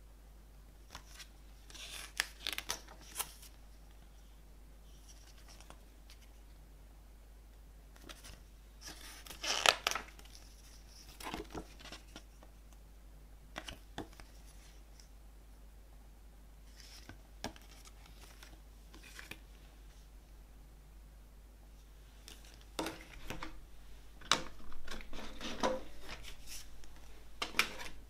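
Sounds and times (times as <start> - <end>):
booklet pages rustling: 0.9 - 3.6, 4.9 - 6.4, 8.0 - 12.5, 16.6 - 20.0, 24.2 - 28.0.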